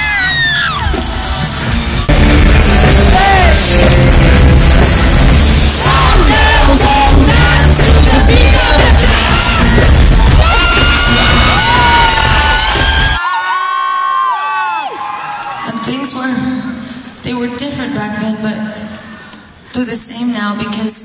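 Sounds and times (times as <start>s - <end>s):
fans yelling and whooping: 0.0s - 3.9s, 5.7s - 15.9s
live pop-rock concert music: 0.0s - 13.2s
person singing: 2.1s - 12.7s.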